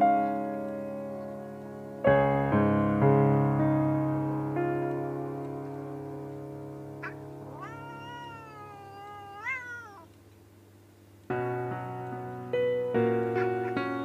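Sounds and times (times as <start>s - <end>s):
piano music: 0.0s - 9.4s, 11.3s - 14.0s
cat meowing: 7.0s - 10.2s.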